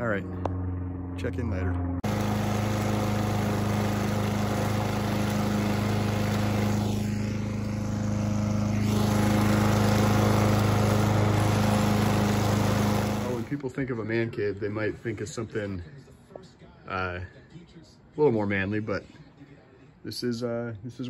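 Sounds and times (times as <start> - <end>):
lawn mower engine running: 2.0 - 13.6.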